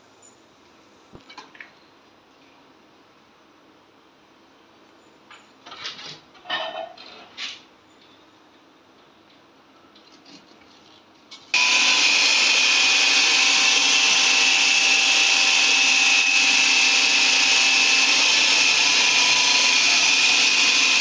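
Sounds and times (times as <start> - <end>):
food processor motor whine: 11.6 - 21.0.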